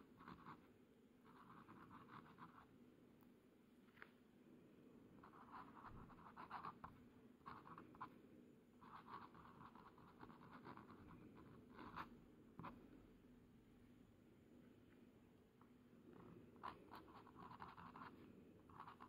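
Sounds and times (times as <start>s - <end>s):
pen nib scratching on paper: 0.2s - 0.7s, 1.3s - 2.7s, 5.2s - 8.2s, 8.8s - 12.8s, 16.2s - 19.0s.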